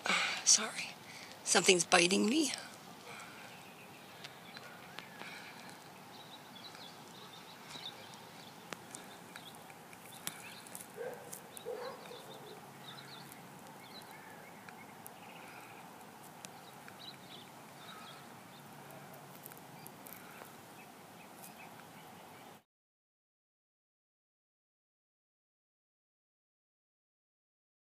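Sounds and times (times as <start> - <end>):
bird chirps: 0.5 - 19.2
low bird call: 3.0 - 19.2.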